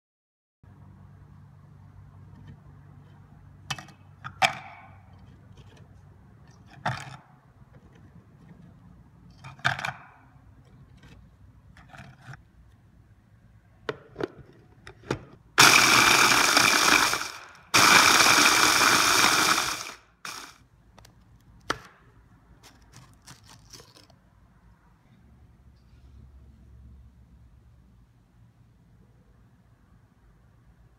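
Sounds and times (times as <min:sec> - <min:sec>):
electric chopper grinding: 0:15.6 - 0:20.6.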